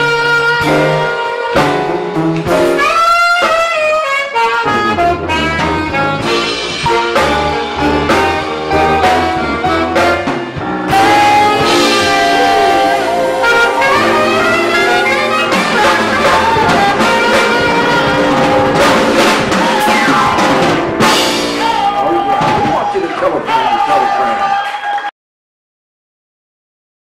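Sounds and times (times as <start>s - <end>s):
saxophone lines with slides: 0.0s - 22.3s
low sousaphone notes: 4.4s - 22.6s.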